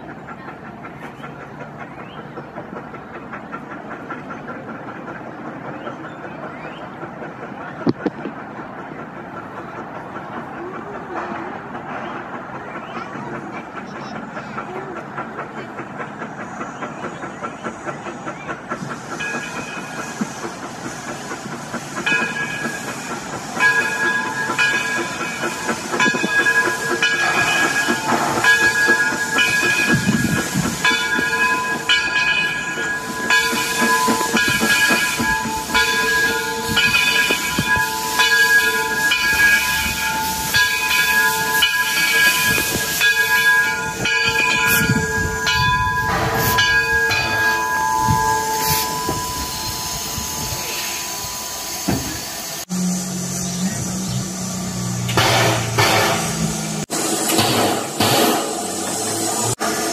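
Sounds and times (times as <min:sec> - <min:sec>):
steam locomotive hiss and rumble: 0:00.0 - 0:59.9
locomotive bell ringing: 0:19.2 - 0:20.2, 0:22.0 - 0:56.8.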